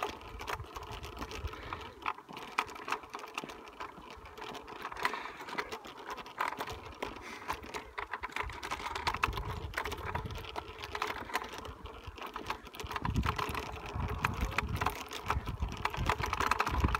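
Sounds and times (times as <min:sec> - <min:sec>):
bicycle freewheel ticking: 0:00.0 - 0:16.9
wind rumbling on microphone: 0:08.3 - 0:16.9.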